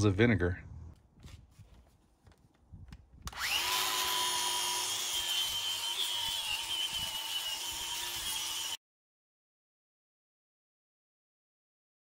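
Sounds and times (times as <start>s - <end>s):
angle grinder scrubbing steel: 3.4s - 8.8s.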